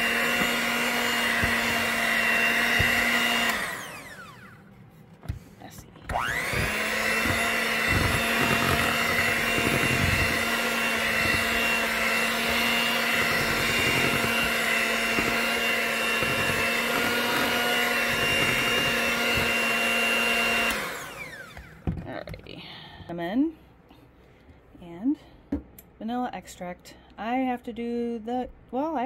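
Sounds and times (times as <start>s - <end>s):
electric hand mixer whining: 0.0s - 4.7s, 6.0s - 21.8s.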